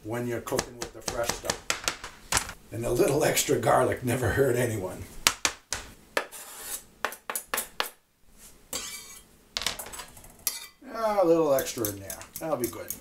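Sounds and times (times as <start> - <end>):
utensils scraping: 8.7 - 9.2.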